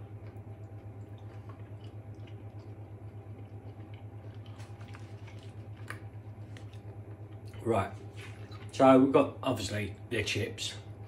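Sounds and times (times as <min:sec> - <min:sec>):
man chewing food: 0:00.0 - 0:08.8
steady low hum: 0:00.0 - 0:11.0.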